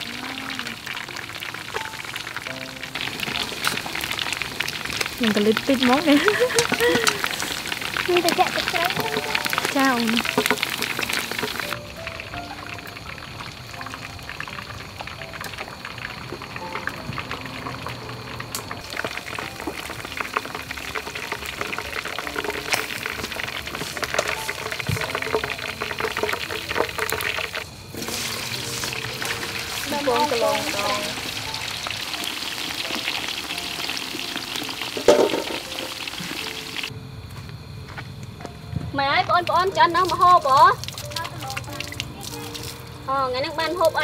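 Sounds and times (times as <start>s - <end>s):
chicken deep-frying in oil: 0.0s - 36.9s, 39.0s - 44.0s
potato sticks frying: 0.0s - 36.9s, 39.4s - 44.0s.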